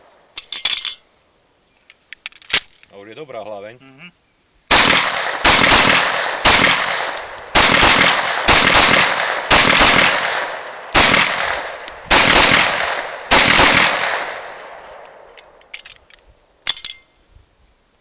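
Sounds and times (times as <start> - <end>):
pistol shots echoing: 4.7 - 15.3.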